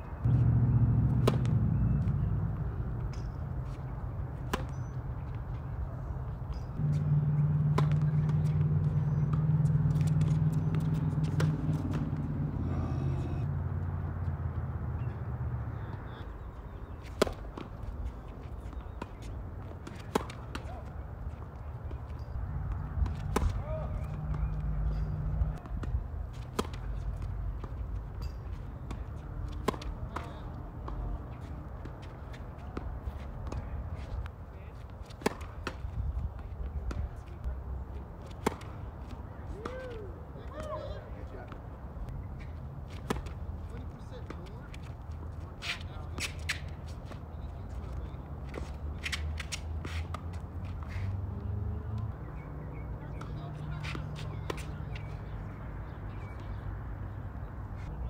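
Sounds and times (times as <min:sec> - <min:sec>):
low engine-like rumble: 0:00.2 - 0:04.5, 0:06.8 - 0:16.2
tennis ball hit by racquet: 0:00.2 - 0:05.0, 0:06.8 - 0:13.2, 0:17.1 - 0:17.8, 0:19.8 - 0:20.9, 0:22.6 - 0:33.9, 0:35.1 - 0:35.9, 0:38.3 - 0:38.8, 0:42.9 - 0:43.4, 0:53.0 - 0:55.2.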